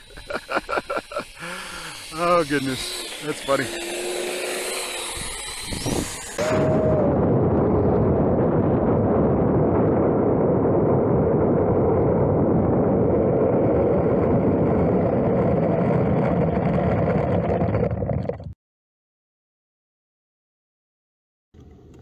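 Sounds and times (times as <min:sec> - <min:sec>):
rumbling of taxiing on asphalt: 0:01.2 - 0:18.6.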